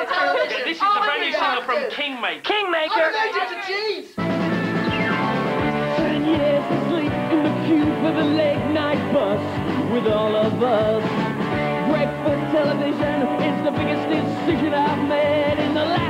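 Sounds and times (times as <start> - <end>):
pop song with singing and band: 5.6 - 16.0.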